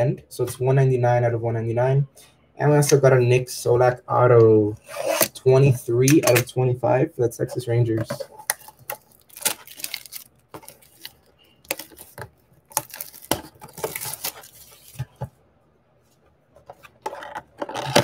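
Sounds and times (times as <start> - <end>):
shrink wrap crinkling: 8.4 - 15.2.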